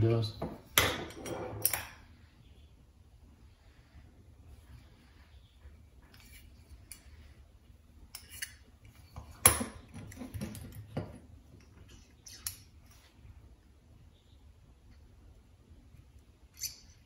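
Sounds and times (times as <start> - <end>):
metal parts clicking and clinking: 16.5 - 17.0.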